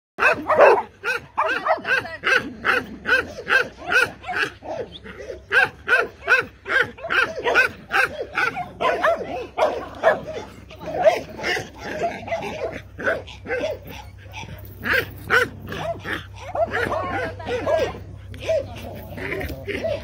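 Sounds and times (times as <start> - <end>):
dog barking: 0.2 - 20.0.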